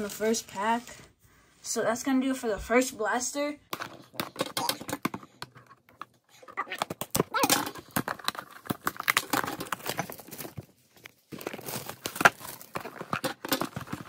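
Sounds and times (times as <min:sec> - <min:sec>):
cardboard and plastic wrap rustling: 0:03.8 - 0:14.0.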